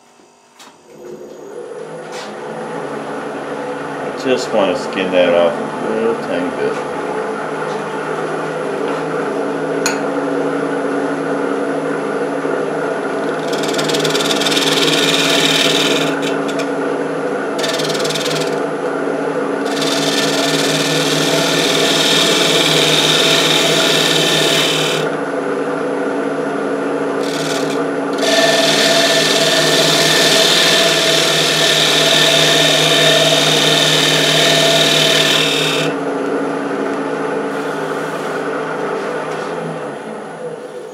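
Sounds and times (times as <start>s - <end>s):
wood lathe humming: 13.1s - 25.3s, 27.0s - 36.1s
turning tool cutting wood: 13.3s - 16.7s, 17.6s - 18.7s, 19.6s - 25.1s, 27.2s - 36.0s.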